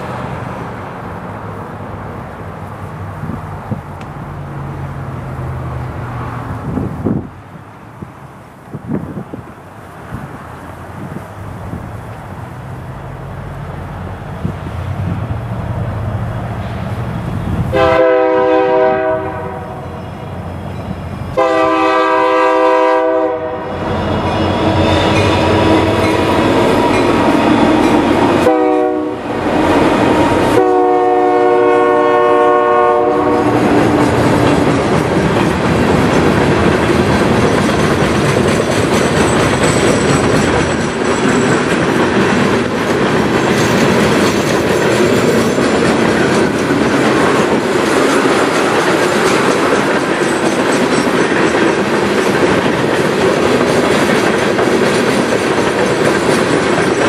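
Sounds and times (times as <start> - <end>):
freight cars wheel-on-rail noise: 0.0 - 57.0
locomotive horn blasts: 17.7 - 20.1, 21.3 - 26.3, 28.4 - 33.8.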